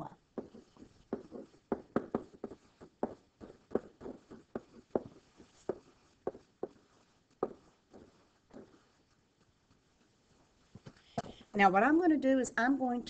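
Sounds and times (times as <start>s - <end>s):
stylus tapping on writing surface: 0.4s - 10.1s.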